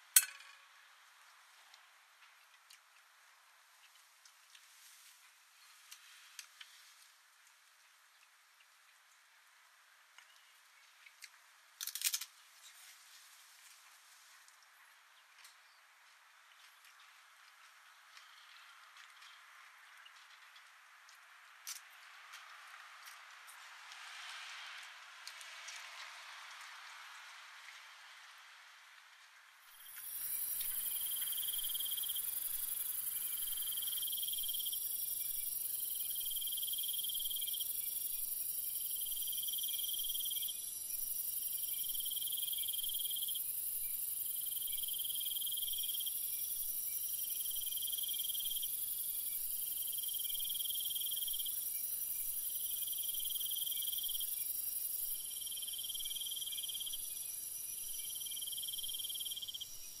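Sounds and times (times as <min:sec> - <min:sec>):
high insect chorus: 0:29.7 - 1:00.0.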